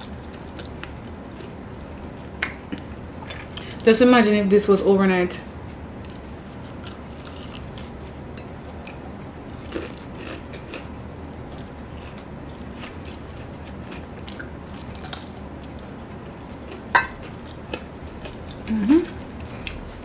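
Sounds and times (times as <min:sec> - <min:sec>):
person chewing crispy chicken: 0:06.0 - 0:19.8.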